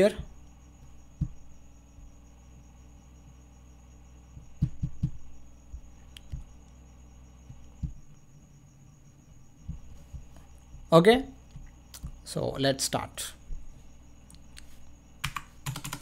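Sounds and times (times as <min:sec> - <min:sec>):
low hum: 0:00.0 - 0:12.4
soft low thumps: 0:00.1 - 0:12.3.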